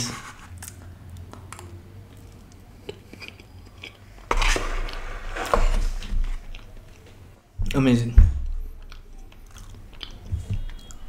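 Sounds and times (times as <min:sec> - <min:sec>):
person chewing: 0:00.6 - 0:04.3, 0:06.4 - 0:07.1, 0:08.8 - 0:11.0
styrofoam box scraping and rustling: 0:04.3 - 0:06.1.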